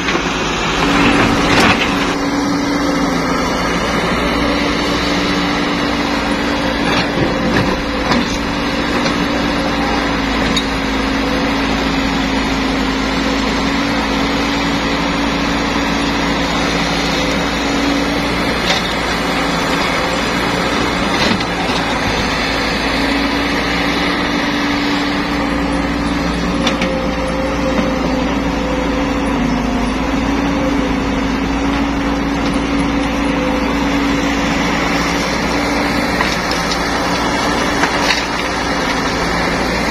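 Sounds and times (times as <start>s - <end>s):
excavator diesel engine droning: 0.0s - 39.9s
knocks of rock and dirt: 35.3s - 39.2s.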